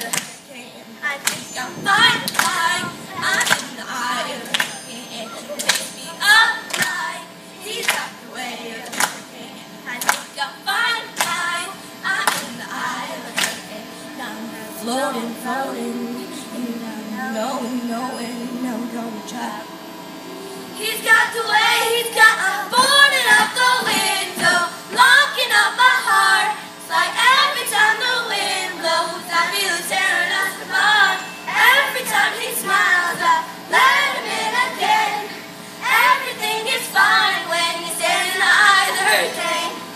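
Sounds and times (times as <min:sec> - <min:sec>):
children's choir singing pop song: 0:00.0 - 0:19.6, 0:20.8 - 0:39.9
choir singing: 0:20.8 - 0:39.9.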